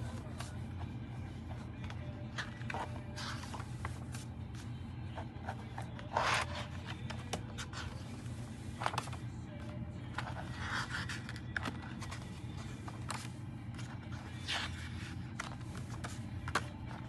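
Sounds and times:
paper pages rustling: 0:00.0 - 0:17.0
steady low hum: 0:00.0 - 0:17.0.

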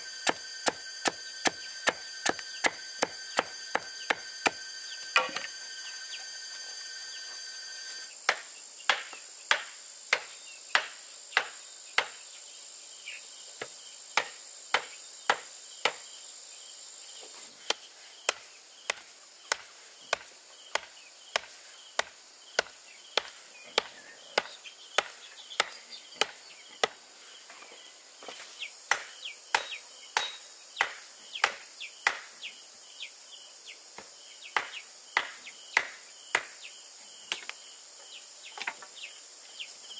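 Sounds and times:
insects chirping: 0:00.0 - 0:39.9
hand tool striking bamboo: 0:00.1 - 0:05.6, 0:08.3 - 0:12.2, 0:28.9 - 0:32.3.

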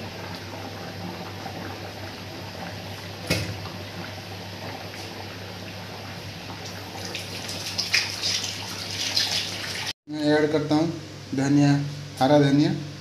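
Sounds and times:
curry bubbling in pan: 0:00.0 - 0:09.7.

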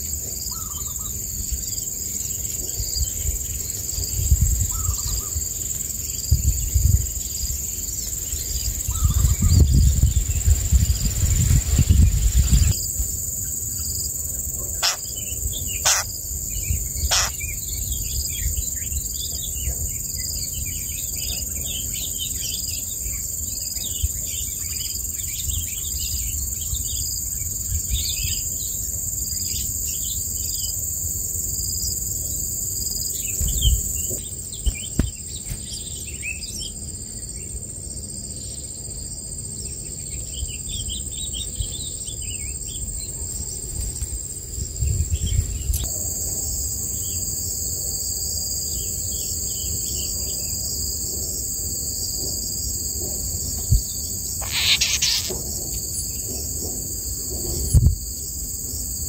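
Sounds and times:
insects droning: 0:00.0 - 0:59.0
baby birds chirping: 0:14.8 - 0:17.8, 0:54.4 - 0:55.5.

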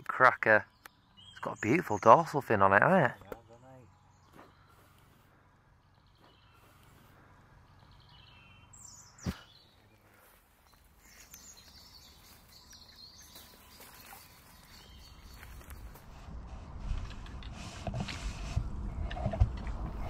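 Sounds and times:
faint birdsong: 0:00.0 - 0:16.4.

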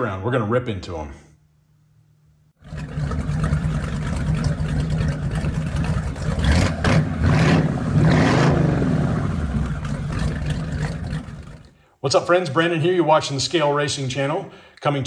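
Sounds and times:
car engine starting and revving: 0:02.6 - 0:11.7.

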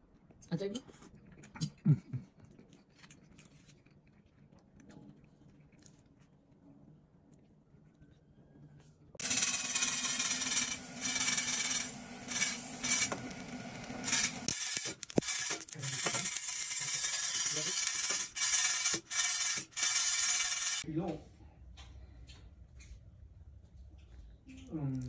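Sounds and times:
coffee beans rattling in metal pan: 0:09.2 - 0:13.2, 0:14.0 - 0:18.8.

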